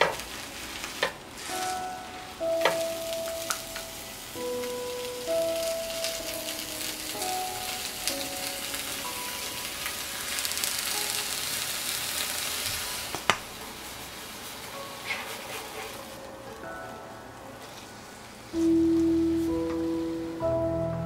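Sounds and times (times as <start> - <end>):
fish sizzling in oil: 0.0 - 16.2.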